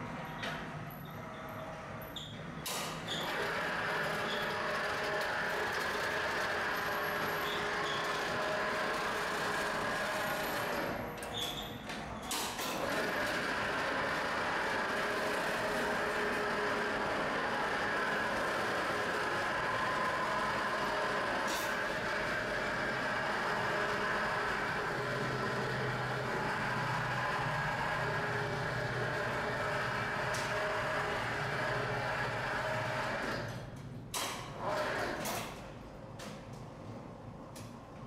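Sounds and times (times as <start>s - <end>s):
overhead crane hum and whine: 12.8s - 34.6s.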